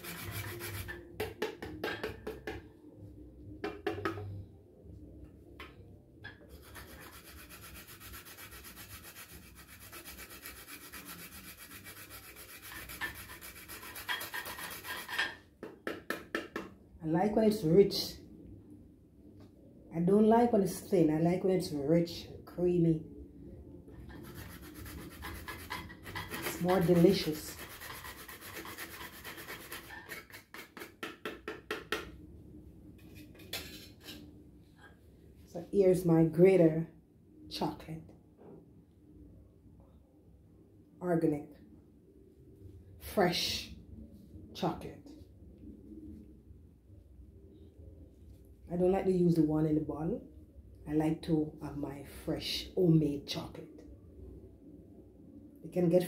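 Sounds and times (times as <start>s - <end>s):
chocolate grated on metal grater: 0.0s - 1.1s, 6.5s - 15.3s, 24.2s - 31.9s.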